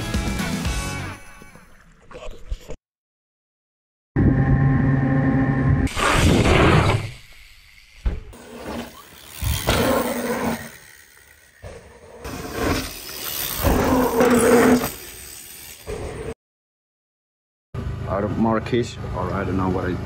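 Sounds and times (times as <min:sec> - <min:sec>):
mountain bike tyres rumbling: 0:06.0 - 0:11.0, 0:11.6 - 0:16.3.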